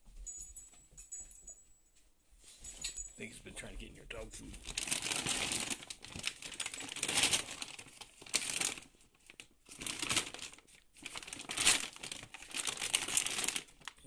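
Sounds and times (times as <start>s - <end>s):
plastic bags crinkling: 3.5s - 14.0s.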